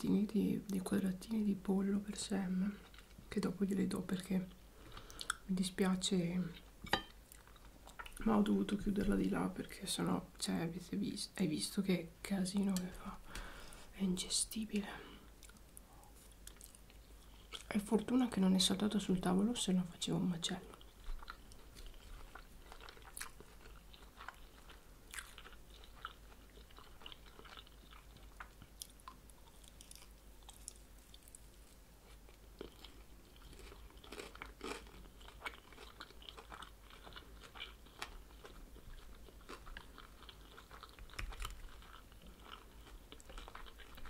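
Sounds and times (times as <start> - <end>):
chewing with soft crunches: 2.2 - 3.6, 4.2 - 5.5, 6.4 - 9.8, 14.8 - 18.4, 20.5 - 44.0.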